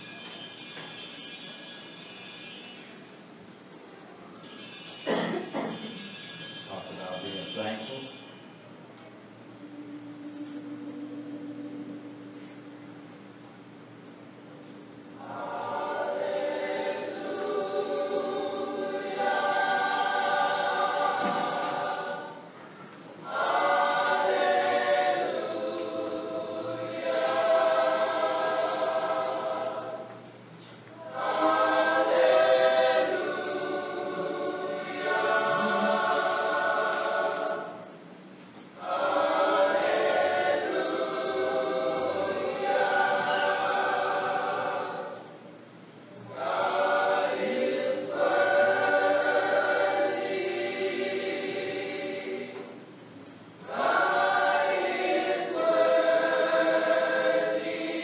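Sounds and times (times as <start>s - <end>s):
choir singing: 9.6s - 13.1s, 14.9s - 30.4s, 31.0s - 38.0s, 38.8s - 45.6s, 46.2s - 58.0s.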